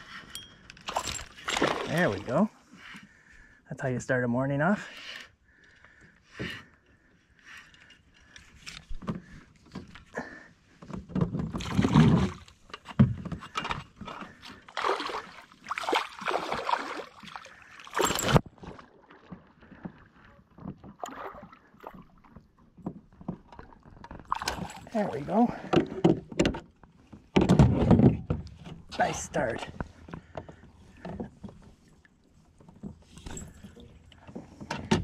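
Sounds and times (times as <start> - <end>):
water splashing and sloshing: 0.0 - 4.0, 5.0 - 35.0
knocks and rustles of handling: 8.2 - 14.4.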